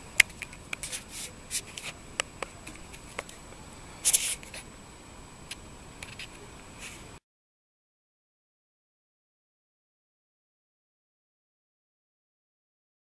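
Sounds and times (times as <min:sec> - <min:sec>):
short rustle: 0:00.7 - 0:02.0, 0:02.6 - 0:04.7.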